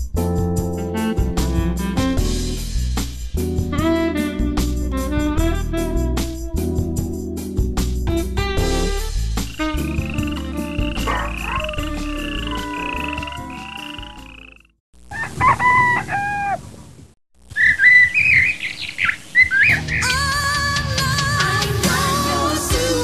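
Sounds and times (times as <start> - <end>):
background music: 0.0 - 14.6, 19.8 - 23.0
birds chirping: 9.4 - 16.8, 17.5 - 20.2
rooster crowing: 11.1 - 13.9, 15.1 - 16.8.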